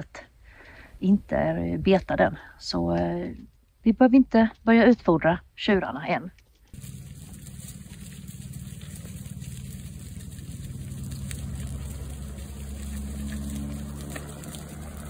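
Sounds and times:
helicopter rotor throbbing: 6.8s - 15.0s.

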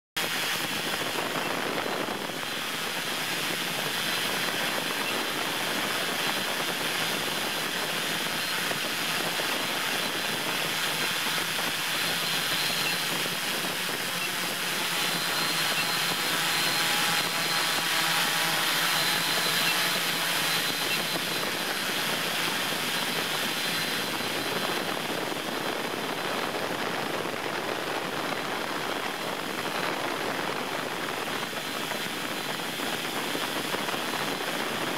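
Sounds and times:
drone motors whirring: 0.2s - 34.9s.

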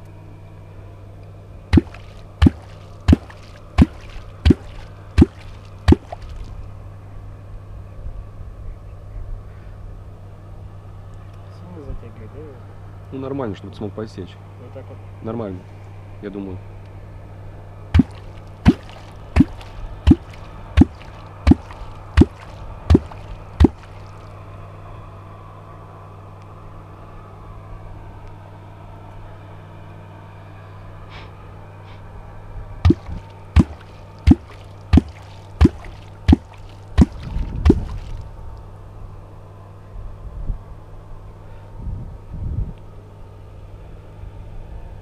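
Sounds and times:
sharp plops on water surface: 1.7s - 6.6s, 18.0s - 24.3s, 32.9s - 38.3s.

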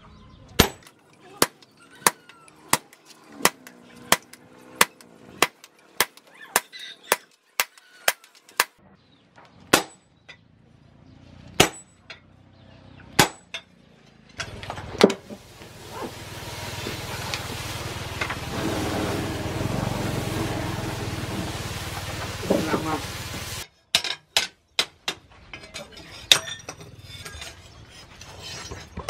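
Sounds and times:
hammer striking chisel on steel: 0.6s - 8.7s, 11.6s - 12.2s, 13.2s - 13.6s
water poured onto steel: 15.3s - 23.6s.

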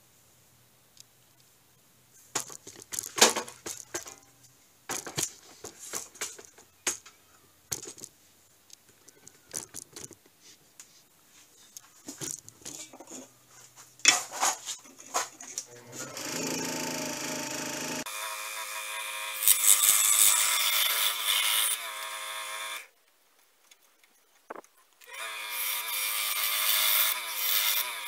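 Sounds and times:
clatter of tools being handled: 12.0s - 13.3s.

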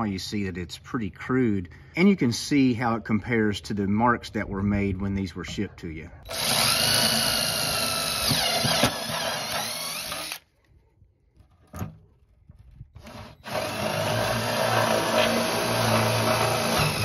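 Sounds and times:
power drill drilling fiberglass: 6.3s - 10.4s, 13.0s - 17.0s.

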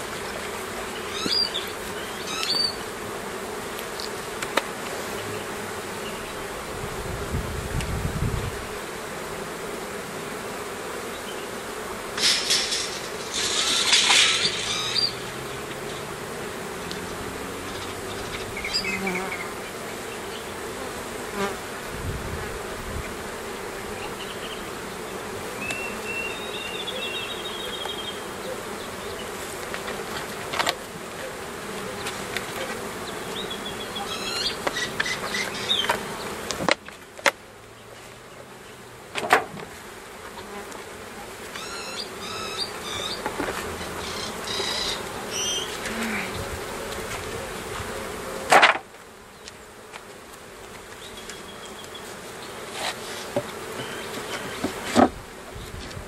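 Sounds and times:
bees buzzing: 0.0s - 56.0s.

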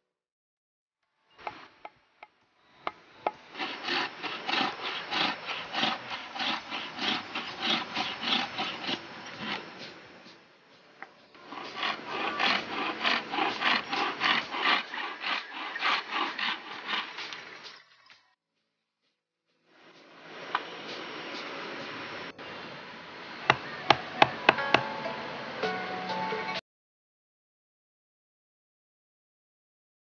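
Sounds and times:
bamboo rasping on a file: 1.4s - 1.9s, 2.9s - 10.4s, 11.4s - 17.8s.

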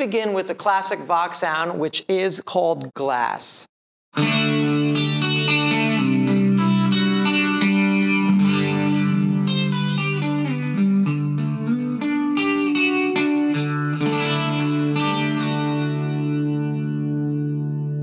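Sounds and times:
electric guitar chords: 4.2s - 18.0s.

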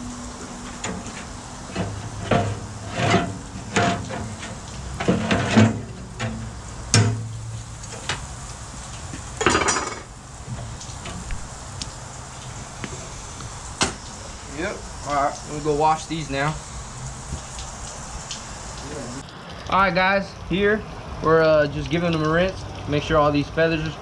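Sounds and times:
low steady hum: 0.0s - 19.2s
metal tool scraping steel barrel: 0.8s - 7.3s.

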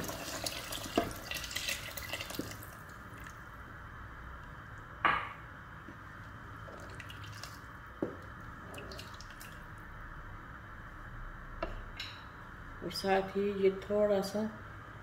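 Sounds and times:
liquid sloshing and dripping: 0.0s - 3.4s, 6.6s - 9.7s.

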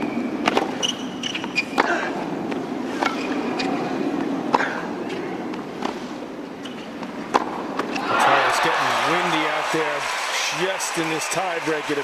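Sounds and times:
tennis ball hits and bounces: 0.4s - 3.8s, 6.6s - 8.2s
crowd hum: 7.9s - 12.0s.

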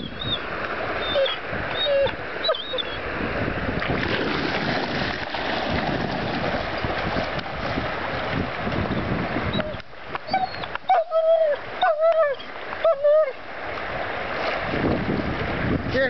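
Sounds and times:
dogs splashing through water: 0.4s - 15.7s
dog whining: 1.0s - 3.0s, 9.5s - 13.3s.

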